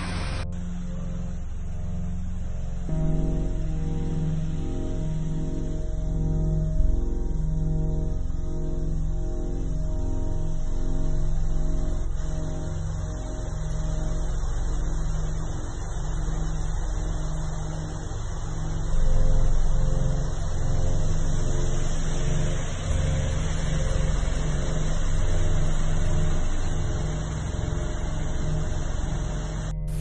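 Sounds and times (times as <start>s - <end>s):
car engines: 0.0s - 0.4s
tyres through running water: 12.9s - 29.8s.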